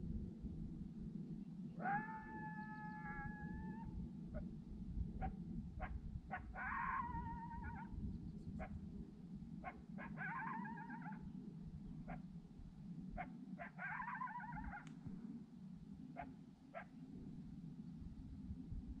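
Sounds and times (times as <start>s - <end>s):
whining coyote-like calls: 1.7s - 4.5s, 5.2s - 8.8s, 9.6s - 11.4s, 12.0s - 12.3s, 13.1s - 15.1s, 16.1s - 17.0s.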